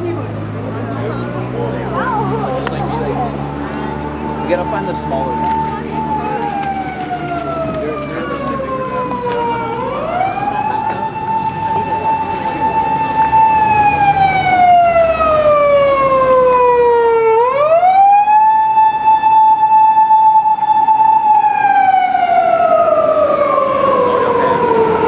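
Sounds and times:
emergency vehicle siren wailing: 0:00.0 - 0:25.0.

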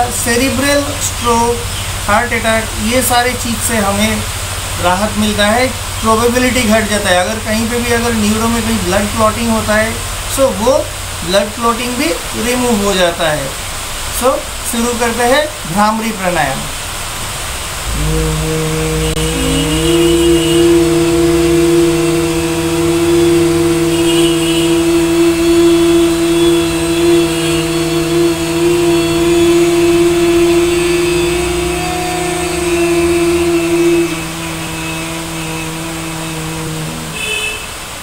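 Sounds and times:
low humming voice: 0:00.0 - 0:12.7, 0:17.9 - 0:37.2
high humming voice: 0:00.0 - 0:13.6, 0:17.8 - 0:37.4.

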